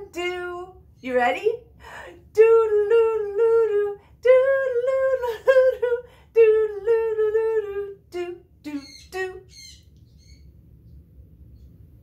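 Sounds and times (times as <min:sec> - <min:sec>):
person humming bouncy tune: 0:02.1 - 0:09.5.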